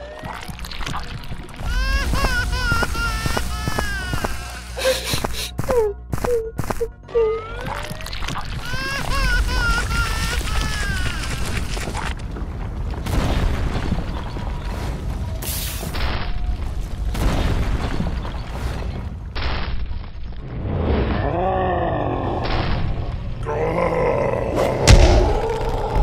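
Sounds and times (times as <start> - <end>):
cartoon booms and blasts: 12.8 - 16.4, 17.0 - 19.9, 24.8 - 26.0
character grunting: 23.4 - 26.0.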